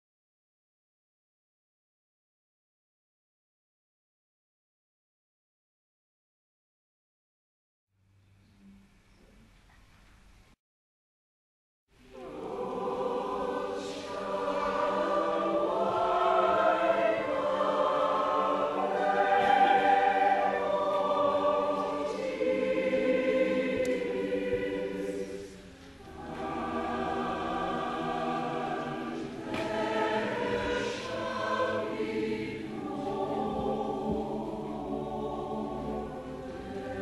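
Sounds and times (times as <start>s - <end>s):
choir singing: 12.0s - 37.0s.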